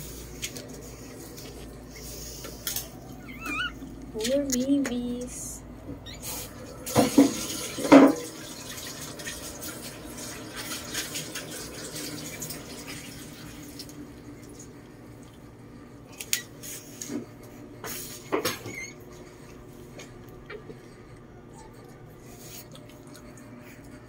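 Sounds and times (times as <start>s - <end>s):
dog licking puppies: 0.0s - 5.1s, 14.6s - 24.0s.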